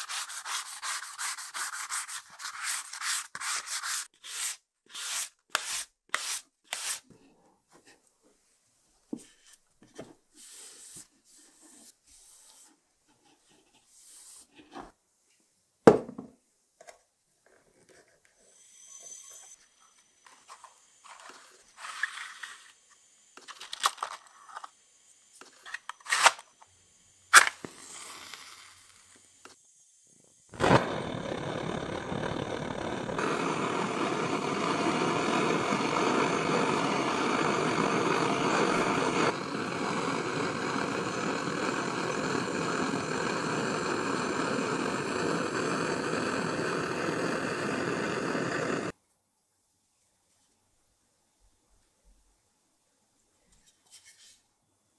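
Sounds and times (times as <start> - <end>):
gas torch hissing: 0.0 - 2.1, 10.4 - 11.0, 18.5 - 29.6, 30.4 - 49.0
match striking with fizz: 0.0 - 7.0, 20.3 - 26.7, 27.3 - 29.6, 30.5 - 49.0.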